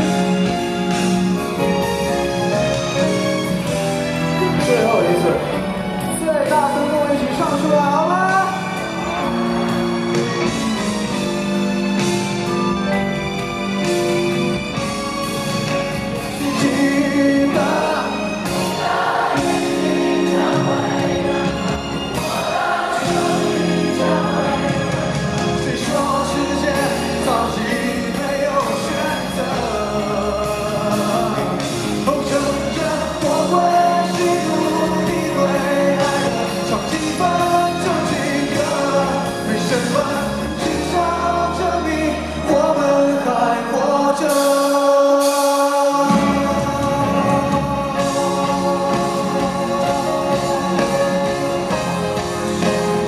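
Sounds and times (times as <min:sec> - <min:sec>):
live band: 0:00.0 - 0:53.0
man singing into microphone: 0:16.4 - 0:18.4, 0:23.0 - 0:53.0.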